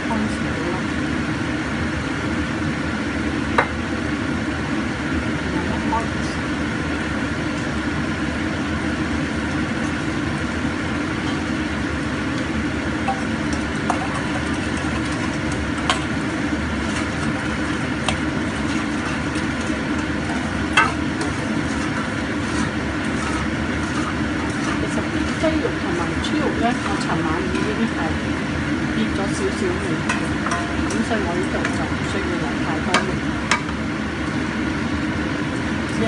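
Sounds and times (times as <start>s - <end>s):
metal spatula scraping steel bowl: 13.9s - 28.1s, 29.3s - 33.7s.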